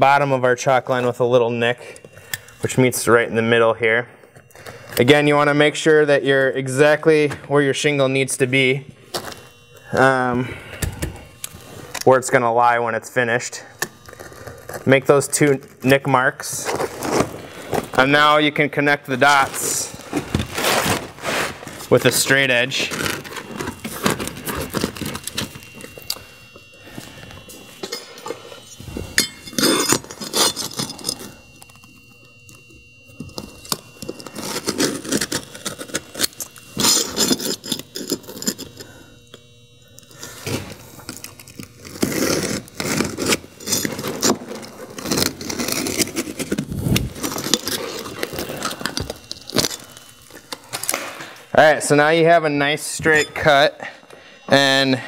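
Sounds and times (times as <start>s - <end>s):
shingle rustling: 19.2s - 22.1s.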